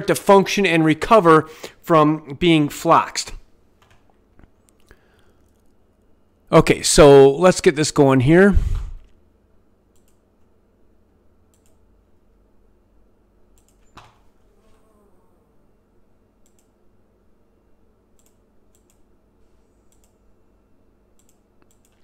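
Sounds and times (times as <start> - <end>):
faint low hum: 0.0 - 22.0
soft computer clicks: 9.9 - 10.2, 11.5 - 11.8, 13.5 - 14.2, 16.4 - 16.8, 18.1 - 19.1, 19.9 - 20.2, 21.1 - 22.0.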